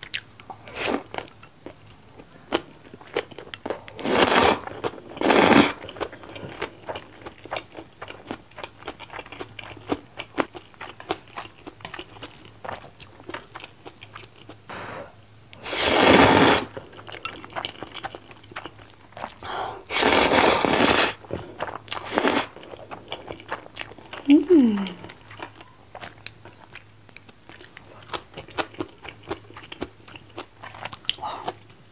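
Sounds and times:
loud noodle slurps: 4.0s - 5.8s, 15.6s - 16.7s, 19.9s - 21.2s, 22.0s - 22.5s.

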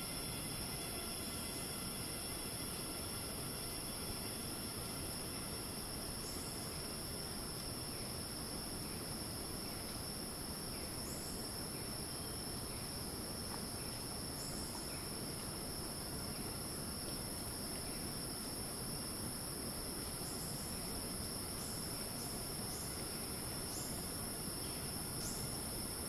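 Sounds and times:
cicadas shrilling: 0.0s - 9.0s, 20.0s - 26.0s.

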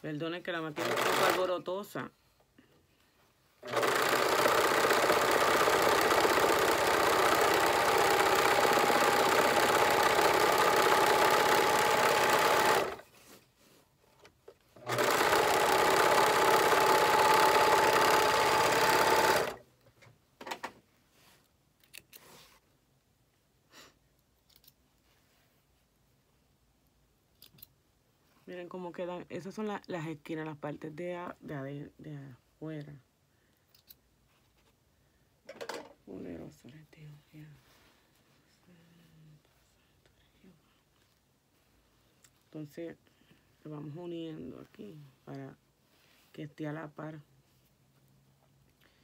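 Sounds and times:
electric sewing machine running: 0.8s - 1.5s, 3.6s - 13.0s, 14.8s - 19.6s.

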